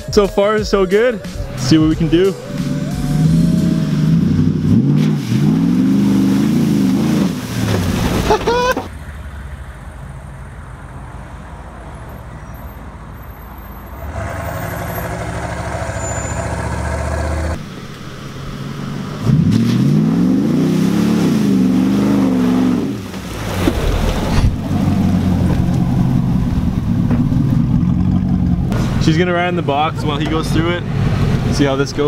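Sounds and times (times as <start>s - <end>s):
truck engines revving: 0.0s - 32.0s.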